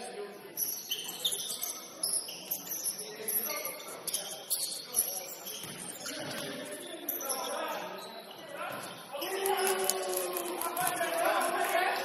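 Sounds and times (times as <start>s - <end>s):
sneaker squeaks on court: 0.5s - 9.1s.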